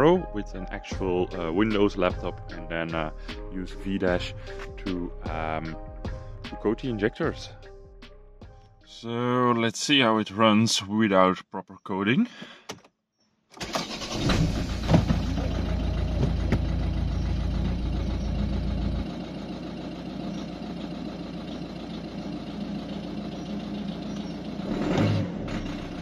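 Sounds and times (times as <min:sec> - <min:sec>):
diesel engine idling rough: 0:14.4 - 0:26.0.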